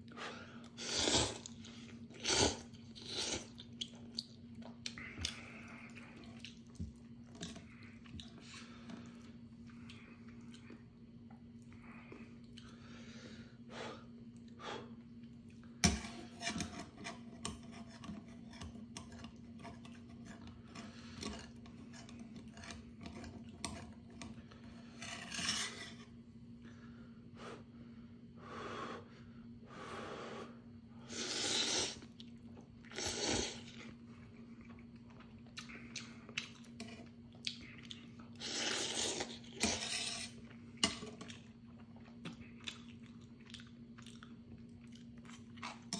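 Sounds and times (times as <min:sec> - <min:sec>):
steady low hum: 0:00.0 - 0:45.9
person chewing: 0:00.7 - 0:10.8, 0:31.3 - 0:45.9
noodle slurps: 0:31.1 - 0:32.1, 0:32.9 - 0:33.8.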